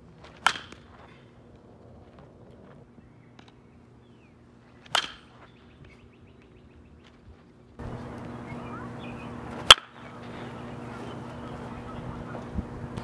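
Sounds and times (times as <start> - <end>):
outdoor background noise: 0.0 - 13.0
bat hitting baseball: 0.3 - 1.0, 4.8 - 5.4, 9.6 - 10.1
bird chirps: 2.9 - 4.4, 5.3 - 7.2, 8.0 - 12.8.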